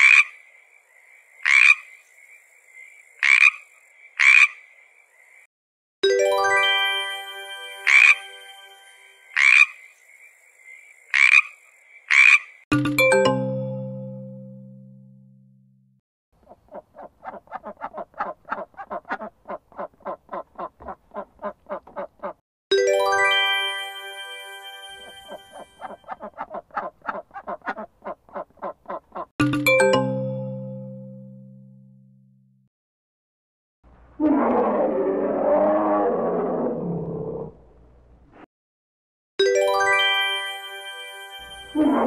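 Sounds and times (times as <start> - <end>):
frog croaking: 0.0 - 5.5, 9.3 - 12.6
duck quacking: 16.4 - 22.4, 25.8 - 29.3.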